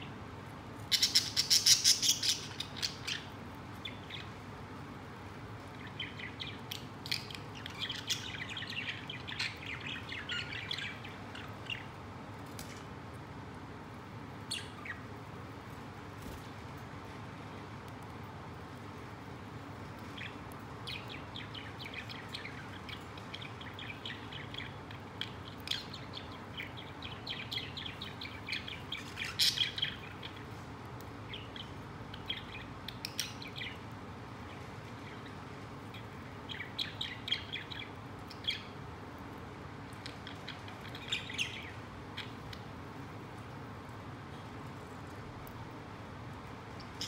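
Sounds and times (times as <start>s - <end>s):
budgerigars chirping: 0.9s - 3.3s, 20.2s - 30.4s.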